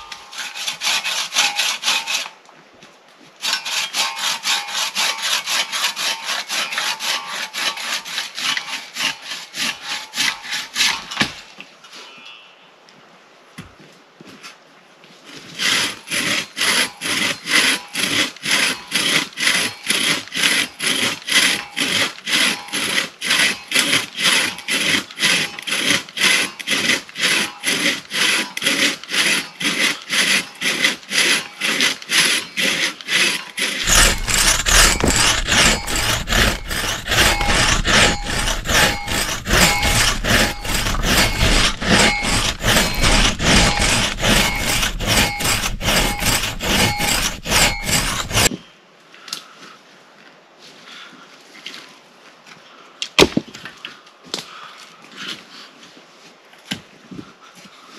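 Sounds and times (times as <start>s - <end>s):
hand saw cutting through log: 0.0s - 2.3s, 3.4s - 11.4s, 15.3s - 48.5s.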